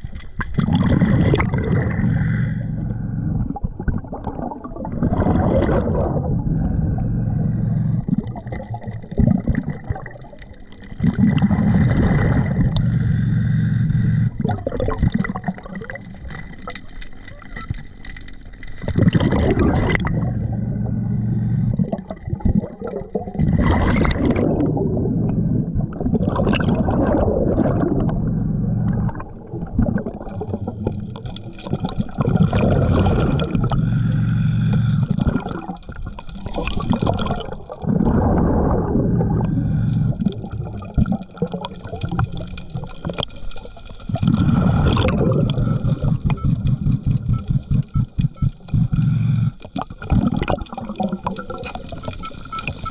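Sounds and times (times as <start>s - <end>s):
bubbling exhales underwater: 0.0s - 17.7s, 18.8s - 52.9s
hissing inhales through regulator: 33.6s - 35.5s, 39.4s - 40.6s, 48.7s - 49.9s.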